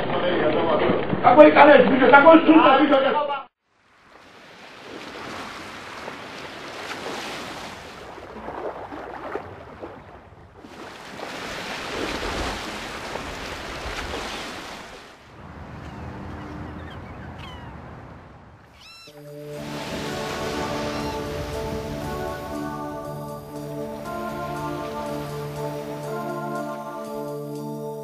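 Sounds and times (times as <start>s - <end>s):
sea waves: 3.7s - 28.0s
wind on microphone: 19.6s - 23.0s.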